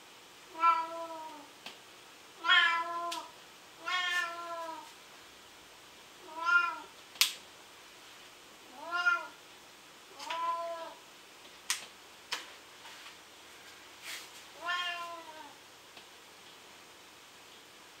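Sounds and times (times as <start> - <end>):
cat meowing: 0.5 - 1.5, 2.4 - 4.9, 6.2 - 6.9, 8.7 - 9.4, 10.1 - 11.0, 14.6 - 15.6.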